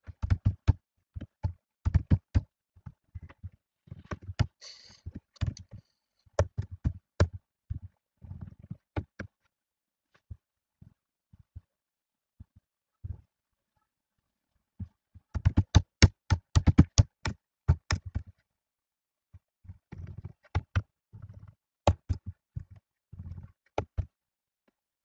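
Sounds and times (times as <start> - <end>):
computer keyboard typing: 15.4 - 18.2.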